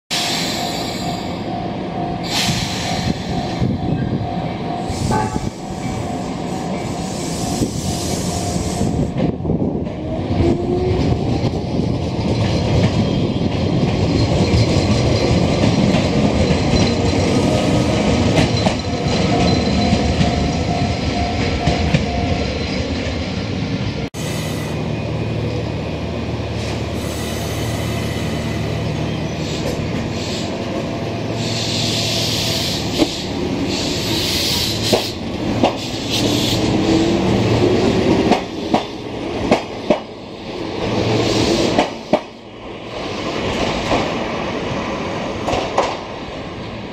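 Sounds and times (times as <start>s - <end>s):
electric train pulling away: 0.1s - 9.4s
standing train humming: 0.1s - 46.9s.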